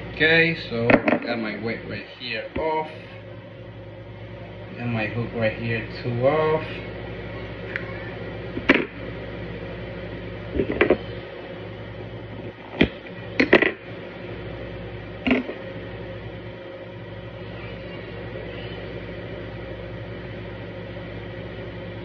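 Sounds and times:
steady low hum: 0:00.0 - 0:22.0.

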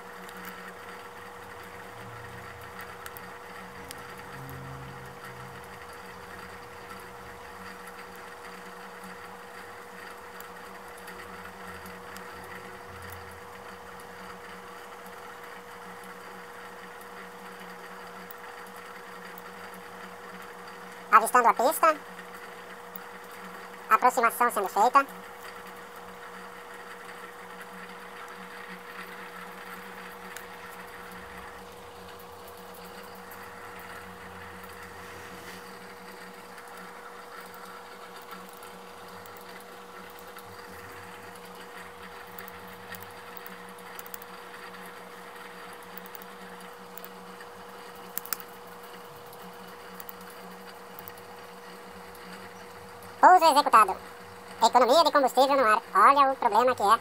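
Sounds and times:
steady hum: 0:00.0 - 0:57.0
faint whine: 0:01.7 - 0:07.9.

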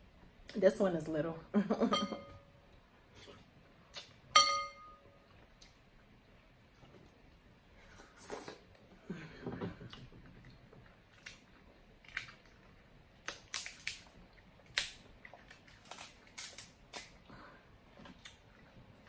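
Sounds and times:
crab shell cracking: 0:13.2 - 0:17.2.

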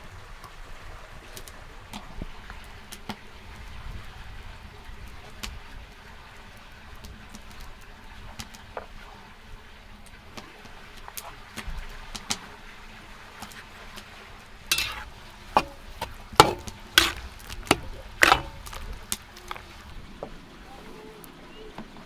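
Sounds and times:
wooden spoon tapping clay bowls: 0:14.7 - 0:19.8.

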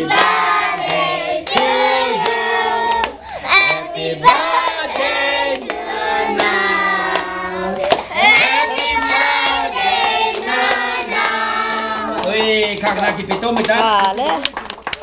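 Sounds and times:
people clapping in time: 0:00.0 - 0:03.2, 0:04.3 - 0:05.8, 0:06.4 - 0:15.0
group singing together: 0:00.0 - 0:12.4.

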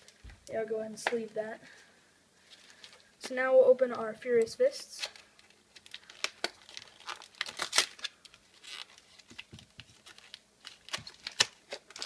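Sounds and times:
foil wrapper crinkling and tearing: 0:05.0 - 0:12.0.

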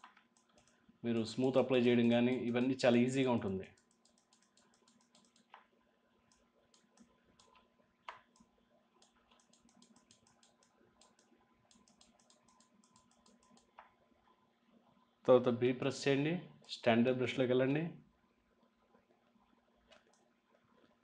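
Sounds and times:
mouse and keyboard clicking: 0:00.0 - 0:00.8, 0:03.7 - 0:05.7, 0:06.3 - 0:13.9, 0:19.9 - 0:20.3.

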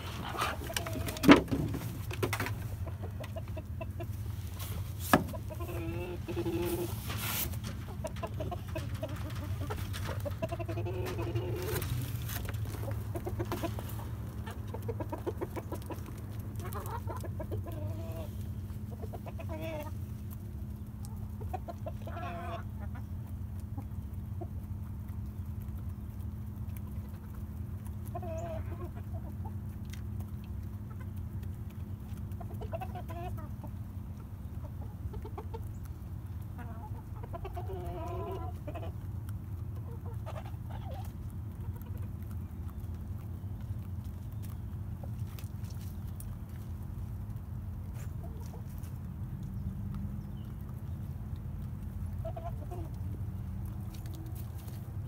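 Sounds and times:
chickens clucking: 0:00.0 - 0:55.0
short chicken calls: 0:03.1 - 0:08.9.

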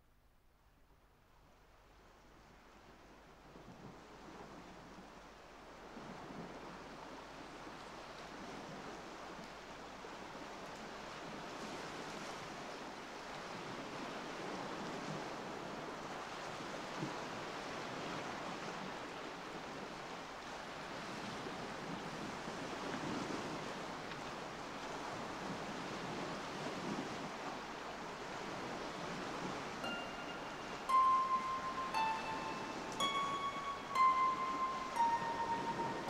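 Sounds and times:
ocean waves washing: 0:19.0 - 0:36.0.

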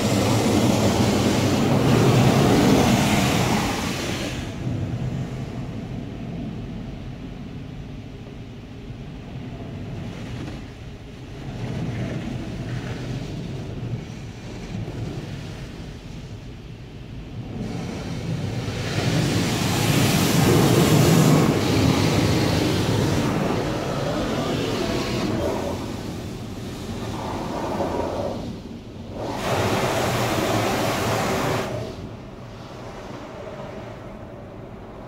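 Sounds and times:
water spray drumming on car body: 0:00.0 - 0:05.2, 0:17.4 - 0:33.2.

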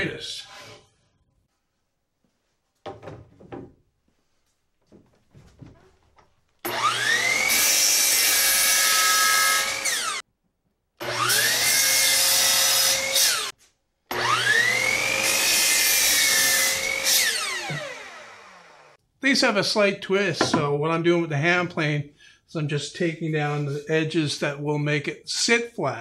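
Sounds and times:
miter saw cutting wood: 0:06.6 - 0:10.2, 0:11.0 - 0:13.5, 0:14.1 - 0:19.0.

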